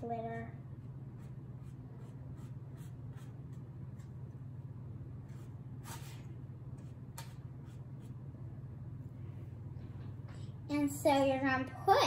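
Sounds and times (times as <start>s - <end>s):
steady low hum: 0.0s - 12.0s
faint scrapes and taps on paper: 6.8s - 7.8s.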